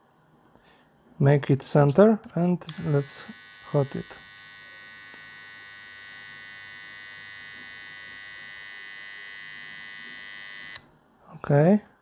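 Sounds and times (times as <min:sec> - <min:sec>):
soldering gun humming: 0:02.7 - 0:10.9.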